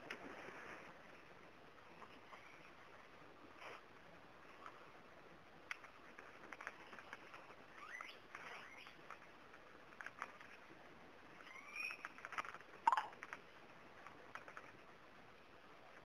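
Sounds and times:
faint birds chirping: 0:06.6 - 0:09.5.

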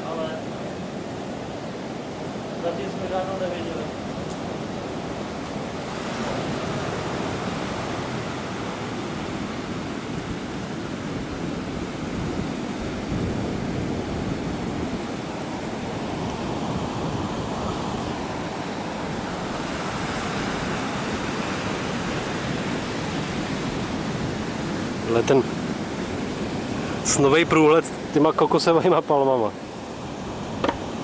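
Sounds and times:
surf waves breaking on beach: 0:00.0 - 0:31.0.

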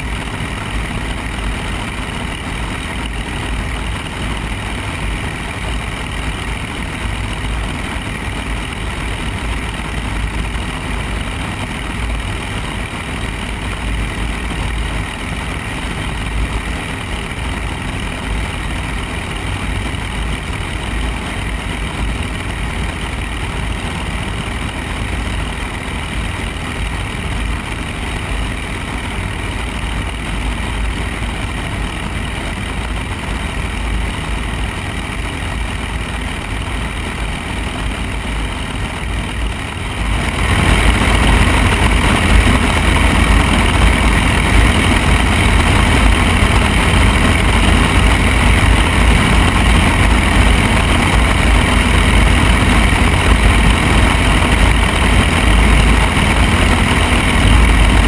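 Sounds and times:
propeller plane engine droning: 0:00.0 - 0:58.0
rushing wind: 0:00.0 - 0:58.0.

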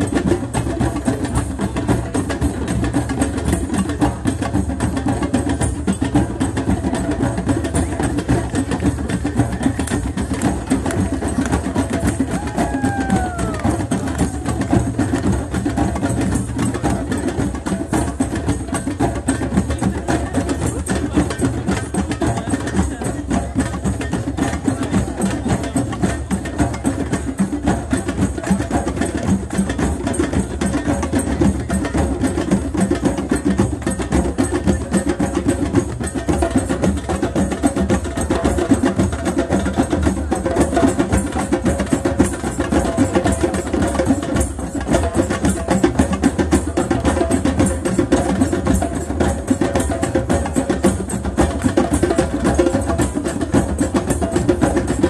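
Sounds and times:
fast rhythmic drumming: 0:00.0 - 0:55.0.

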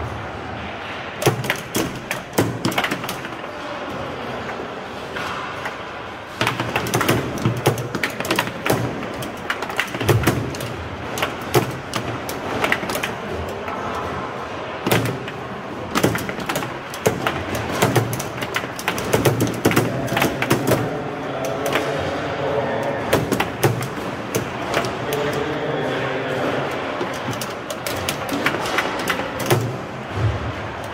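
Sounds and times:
foosball rods knocking: 0:01.1 - 0:30.9
foosball cracking off plastic players: 0:01.2 - 0:03.7, 0:05.0 - 0:30.9
ball clacking against table walls: 0:01.2 - 0:30.9.

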